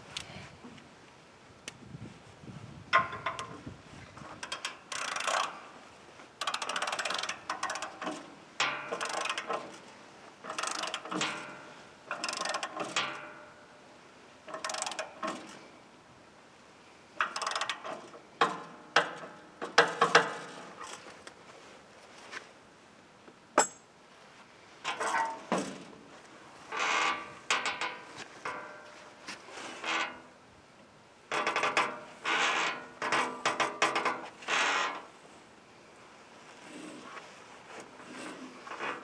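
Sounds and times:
ratchet wrench clicking: 0:04.4 - 0:05.6, 0:06.4 - 0:08.1, 0:08.9 - 0:09.5, 0:10.5 - 0:11.4, 0:12.1 - 0:13.1, 0:14.5 - 0:15.3, 0:17.2 - 0:17.9.

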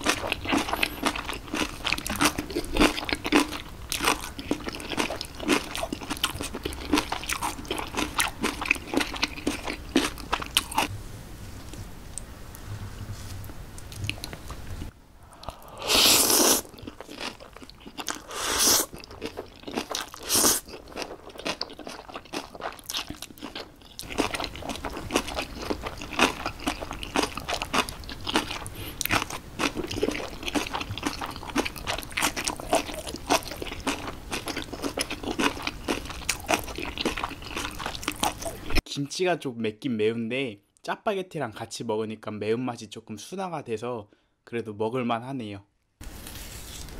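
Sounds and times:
wet chewing with crunches: 0:00.0 - 0:10.9, 0:13.8 - 0:38.8
noodle slurps: 0:15.3 - 0:19.4, 0:20.0 - 0:20.8.

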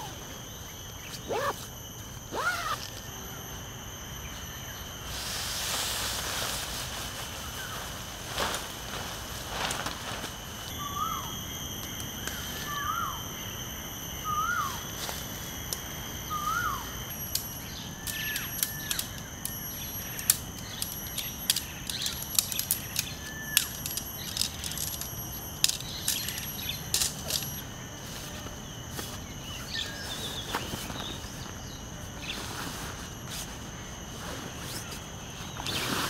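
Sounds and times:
high-pitched insect drone: 0:00.0 - 0:36.0
birds whistling: 0:02.3 - 0:02.9, 0:10.7 - 0:11.4, 0:12.3 - 0:13.6, 0:14.2 - 0:14.9, 0:16.2 - 0:27.6
tent poles clicking and knocking: 0:17.3 - 0:27.6.

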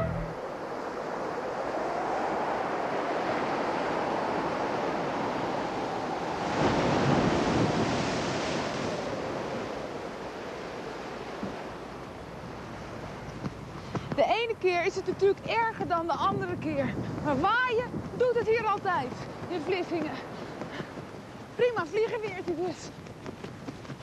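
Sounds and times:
wind on microphone: 0:00.0 - 0:24.0
heavy surf breaking: 0:02.4 - 0:14.2.

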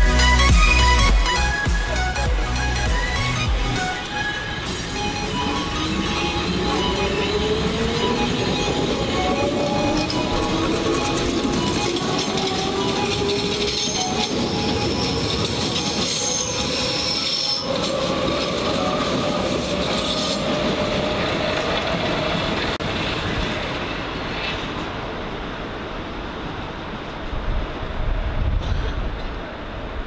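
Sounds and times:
electric train whine: 0:00.0 - 0:28.4
high wheel squeal: 0:03.1 - 0:21.1
wheel-on-rail noise: 0:03.8 - 0:30.0.

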